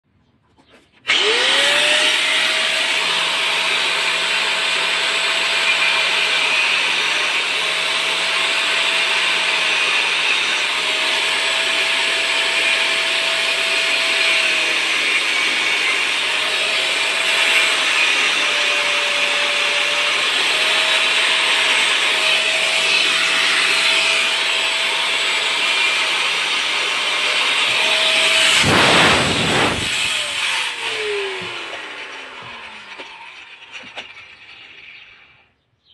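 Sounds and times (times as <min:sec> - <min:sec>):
angle grinder running: 0:01.1 - 0:35.4
grinder disc cutting hiss: 0:01.1 - 0:35.4.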